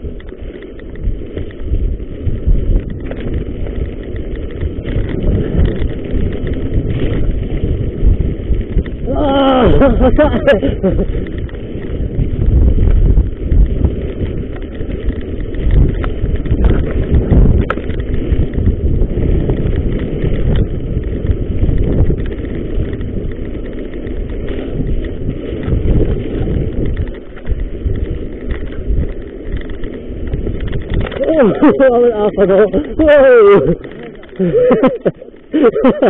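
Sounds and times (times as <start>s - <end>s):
bike tyres and frame rattling: 0.0s - 36.0s
wind buffeting microphone: 0.0s - 36.0s.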